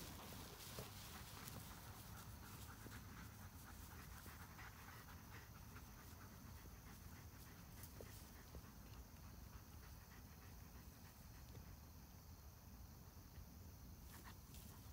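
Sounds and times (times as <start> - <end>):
rustling through tall grass: 0.0 - 8.5
dog panting: 0.0 - 11.8.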